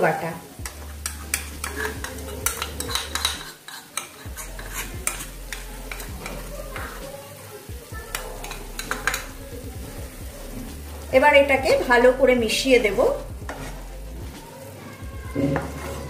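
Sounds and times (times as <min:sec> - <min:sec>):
light sizzle of cooking: 0:00.0 - 0:16.0
spoon tapping against bowl: 0:00.6 - 0:06.9, 0:08.1 - 0:09.4
spoon scraping plastic bowl: 0:01.0 - 0:06.4, 0:13.5 - 0:13.8.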